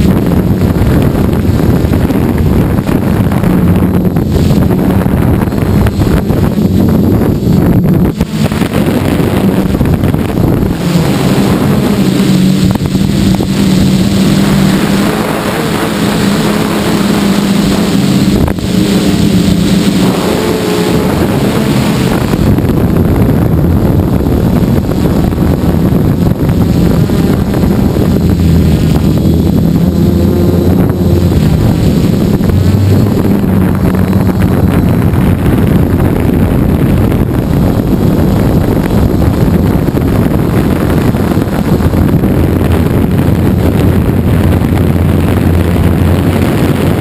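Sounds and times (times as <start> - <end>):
quadcopter propellers buzzing: 0.0 - 47.0
wind over microphone: 0.0 - 47.0.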